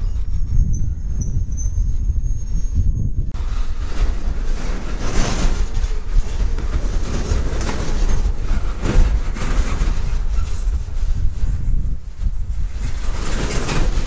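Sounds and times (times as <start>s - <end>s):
freight train wheels rumbling: 0.0s - 14.0s
wheels clacking over rail joints: 3.4s - 14.0s.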